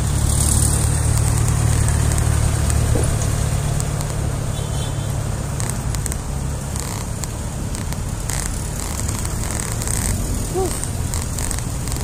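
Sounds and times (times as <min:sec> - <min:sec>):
bicycle tyres on asphalt: 0:00.0 - 0:12.0
faint clicks: 0:05.5 - 0:12.0.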